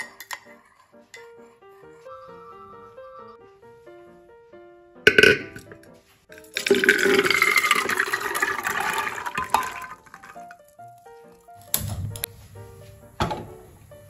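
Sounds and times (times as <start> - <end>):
chickpeas rattling into a pot: 6.4 - 10.6.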